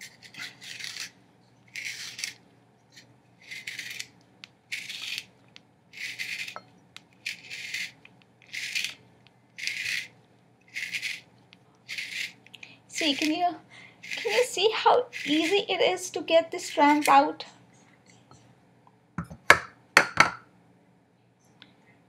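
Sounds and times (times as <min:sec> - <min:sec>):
spiral slicer cutting cucumber: 0:06.0 - 0:06.6, 0:13.0 - 0:13.4, 0:14.0 - 0:14.5, 0:15.1 - 0:15.6, 0:16.6 - 0:17.2.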